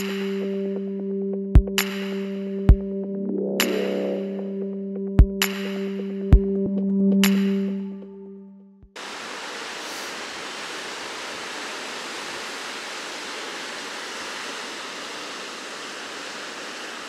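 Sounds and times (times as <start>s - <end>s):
music: 0.0s - 9.0s
ocean surf rushing: 9.0s - 17.0s.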